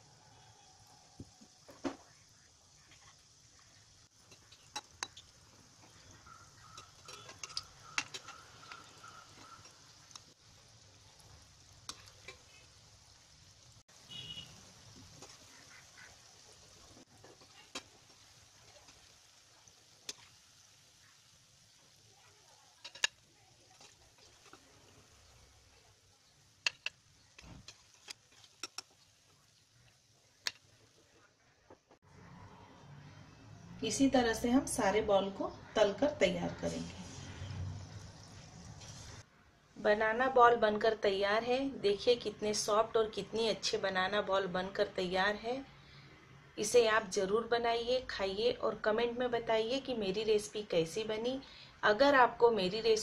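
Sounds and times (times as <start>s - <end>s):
deep-frying sizzle in oil: 0.0s - 53.0s
metal ladle striking pan: 6.6s - 9.8s.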